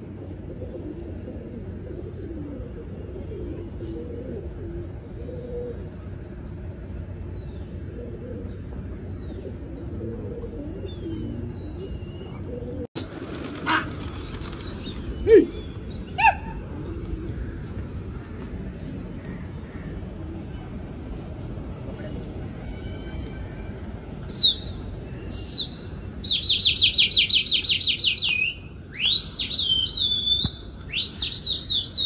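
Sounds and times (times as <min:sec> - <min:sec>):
pigeons cooing: 0:00.0 - 0:06.2, 0:07.6 - 0:18.1
small birds chirping: 0:05.0 - 0:17.8.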